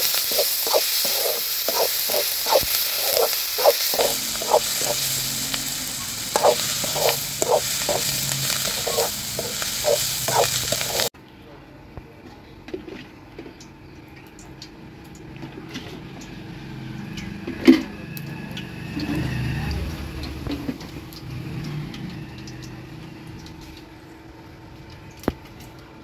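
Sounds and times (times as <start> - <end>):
distant vehicle rumble: 0.0 - 11.1, 15.5 - 25.0.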